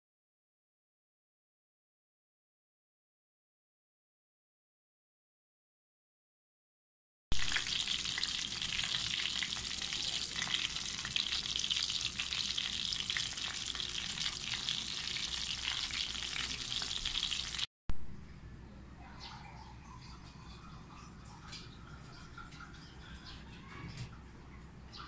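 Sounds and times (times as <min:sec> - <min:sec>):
chicken sizzling in hot oil: 0:07.3 - 0:17.7
oil crackling and popping: 0:07.3 - 0:17.7.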